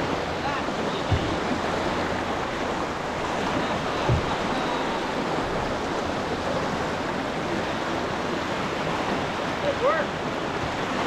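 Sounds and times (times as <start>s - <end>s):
whitewater rushing: 0.0s - 11.0s
low thump: 1.0s - 1.6s, 3.8s - 4.8s.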